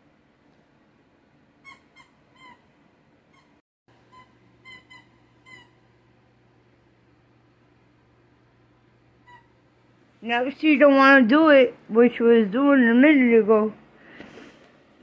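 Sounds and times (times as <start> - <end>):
squeaky dog toy squeaking: 1.6 - 2.7, 3.4 - 5.8.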